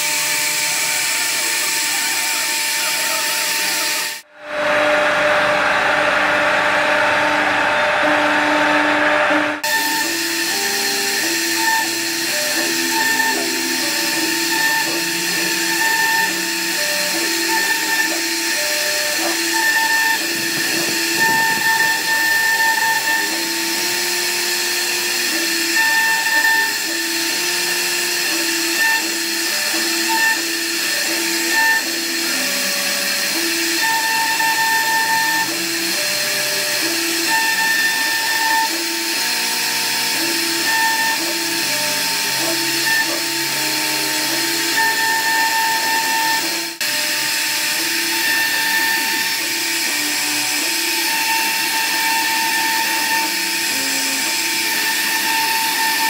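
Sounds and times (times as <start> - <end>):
wood router cutting hiss: 0.0 - 56.0
motor whines stepping in pitch: 3.2 - 56.0.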